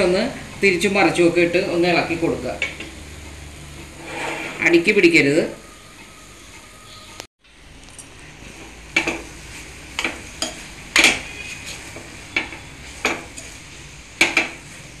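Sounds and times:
metal spoon scraping a pan: 0:03.8 - 0:05.0, 0:10.0 - 0:14.6.

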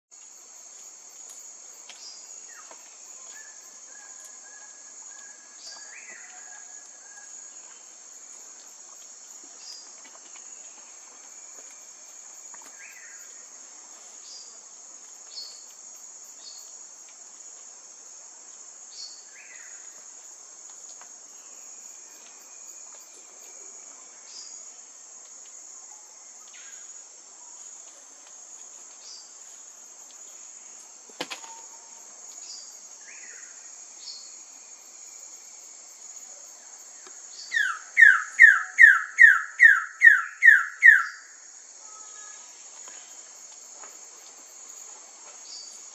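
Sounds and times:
high-pitched insect chorus: 0:00.2 - 0:45.9
bird chirps: 0:37.3 - 0:41.3.

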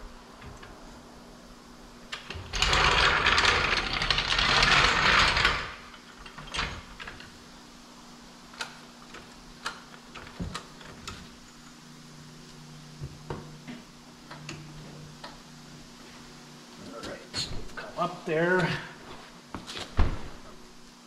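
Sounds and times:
floor jack rolling rumble: 0:02.2 - 0:06.8.

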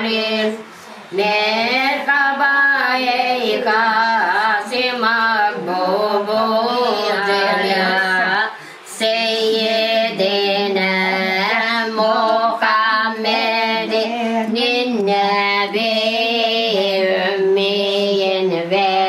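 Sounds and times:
person chanting religious melody: 0:00.0 - 0:19.0.

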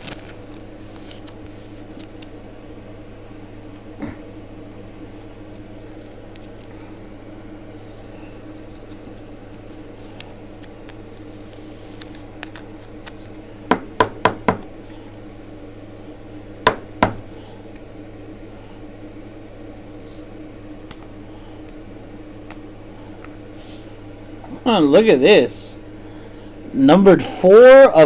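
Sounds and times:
steady low hum: 0:00.0 - 0:28.0
sharp knocks: 0:16.6 - 0:17.2.

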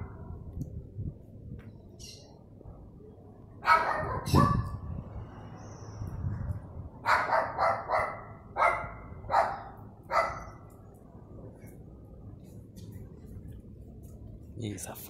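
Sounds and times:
dog barking: 0:03.6 - 0:04.7, 0:07.0 - 0:10.6.

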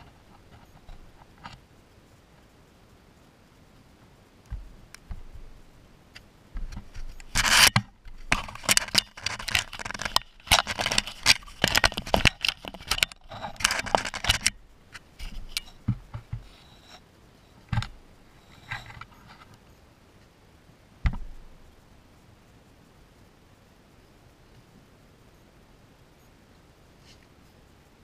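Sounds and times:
animals scratching at microphone: 0:06.7 - 0:17.0.

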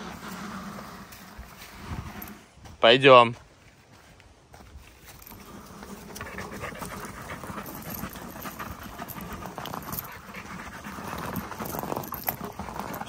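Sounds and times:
dog panting: 0:05.2 - 0:13.0.

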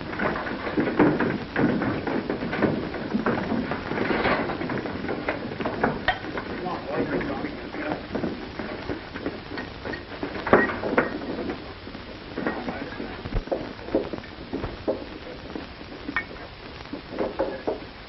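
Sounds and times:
bowls clattering: 0:05.8 - 0:06.6.

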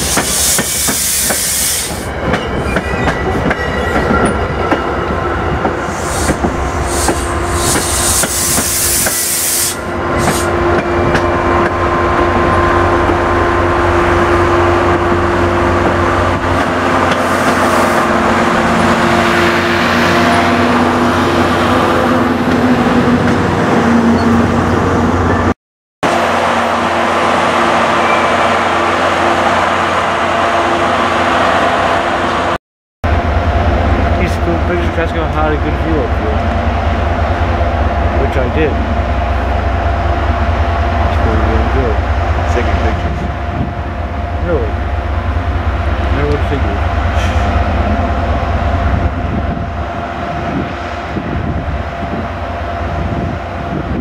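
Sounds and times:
train wheels rattling over track: 0:00.0 - 0:13.2
diesel locomotive engine drone: 0:00.0 - 0:54.0.

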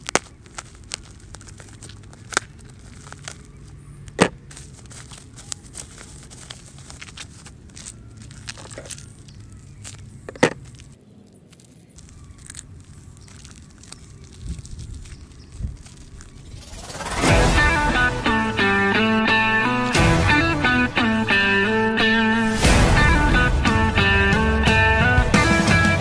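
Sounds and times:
tape tearing and snapping: 0:00.0 - 0:16.5
plastic wrapping crinkling: 0:00.0 - 0:16.8.

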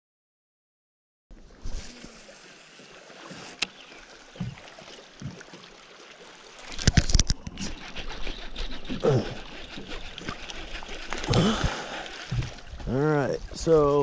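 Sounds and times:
light water noise: 0:01.3 - 0:14.0
steady wind: 0:06.9 - 0:14.0.

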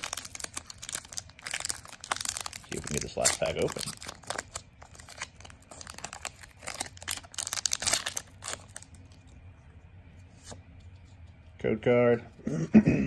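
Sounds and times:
foil wrapper tearing and crinkling: 0:00.0 - 0:09.1.

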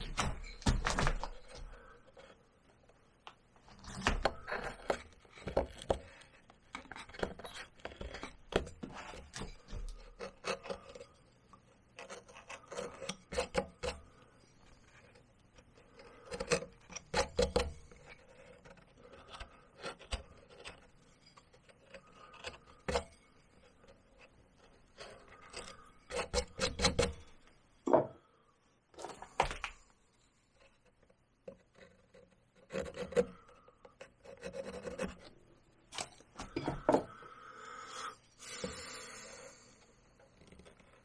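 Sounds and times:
carving tools cutting into bark: 0:03.9 - 0:14.2, 0:15.8 - 0:23.2, 0:24.6 - 0:27.2, 0:31.6 - 0:35.3.

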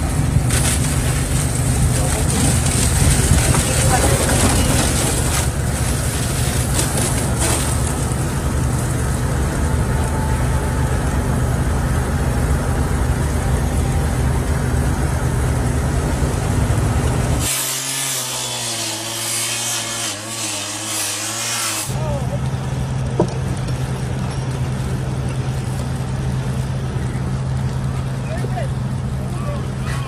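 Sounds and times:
saw cutting metal: 0:17.4 - 0:22.0.

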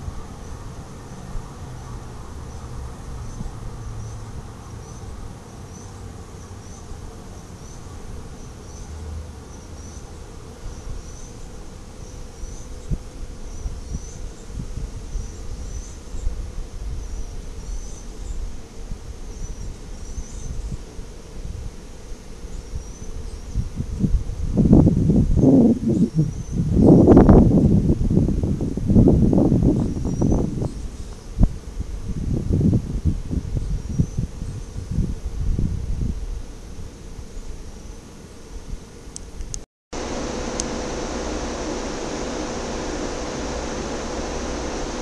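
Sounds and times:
loud sudden noise: 0:40.0 - 0:45.0.

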